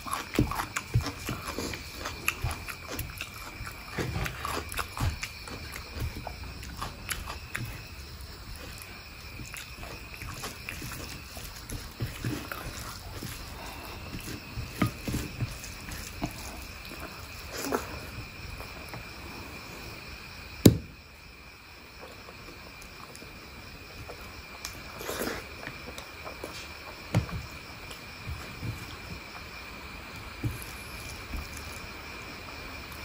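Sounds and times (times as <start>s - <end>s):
wet chewing sounds: 0.0s - 19.0s.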